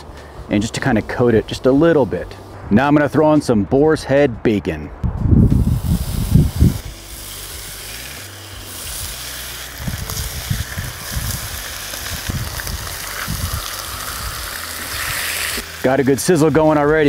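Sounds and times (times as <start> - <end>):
bacon sizzling on griddle: 5.6 - 17.0.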